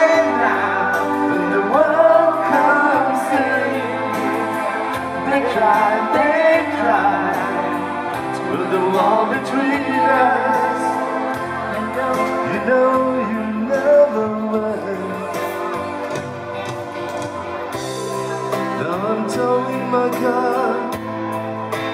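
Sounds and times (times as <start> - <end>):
man singing along: 0.0 - 16.0, 18.5 - 21.2
electric keyboard: 0.0 - 21.9.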